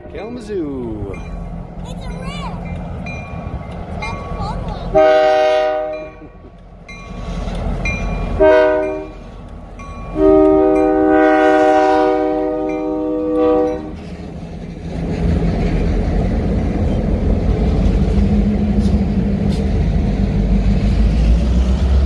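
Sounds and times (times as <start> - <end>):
diesel engines rumbling past: 0.0 - 22.0
locomotive air horn blasts: 4.9 - 6.2, 8.4 - 9.2, 10.2 - 14.0.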